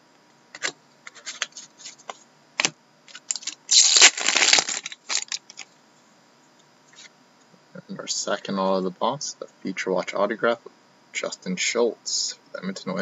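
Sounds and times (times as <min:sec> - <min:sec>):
trading cards clicking and rustling: 0:00.6 - 0:05.6
foil wrapper tearing and crinkling: 0:02.6 - 0:05.6.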